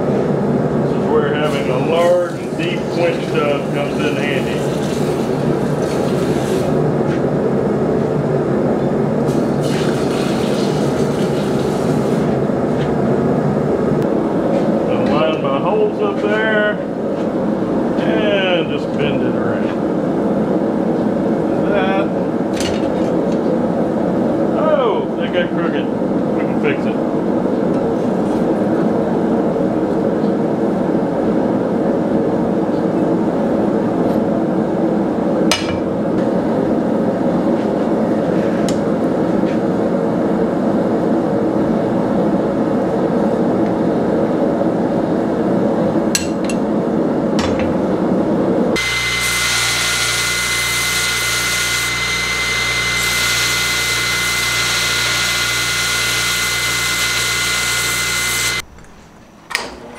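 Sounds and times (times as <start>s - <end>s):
forge burner roaring: 0.0s - 59.9s
belt grinder grinding steel: 48.8s - 58.6s.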